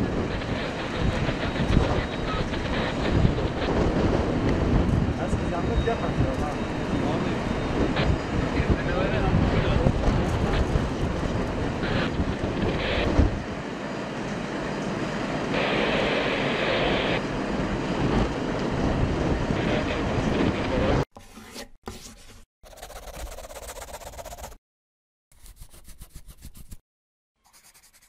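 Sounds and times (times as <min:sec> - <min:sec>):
wind buffeting microphone: 0:00.0 - 0:13.7, 0:15.1 - 0:21.0
fire engines running: 0:00.0 - 0:21.0.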